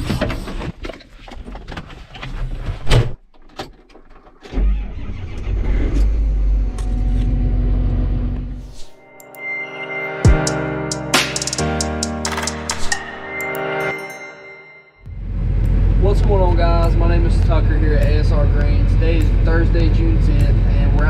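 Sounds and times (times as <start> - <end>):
tractor diesel engine starting: 4.4 - 8.6
music: 8.3 - 15.1.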